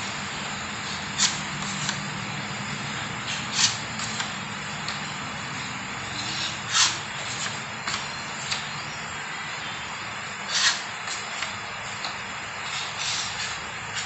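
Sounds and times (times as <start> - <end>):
putty knife scraping a wall: 0.8 - 2.0, 3.3 - 4.3, 6.1 - 8.6, 10.4 - 11.6, 12.6 - 14.0.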